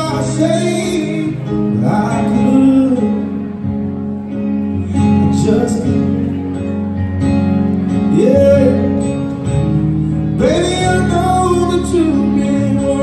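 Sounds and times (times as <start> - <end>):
guitar: 0.0 - 13.0
keyboard: 0.0 - 13.0
man singing long notes: 8.0 - 9.2, 10.3 - 13.0.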